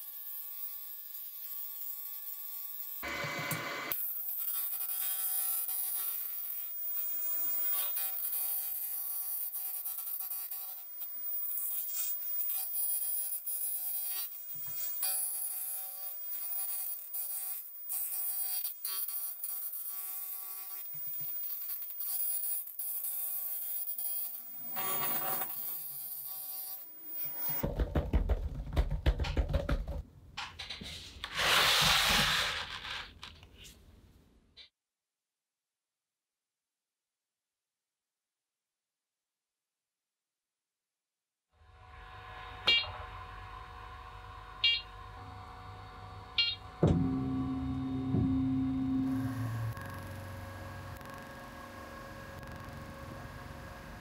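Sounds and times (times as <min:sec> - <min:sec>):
rustling and knocking: 0:27.6 - 0:31.2
machine high whine: 0:41.7 - 0:54.0.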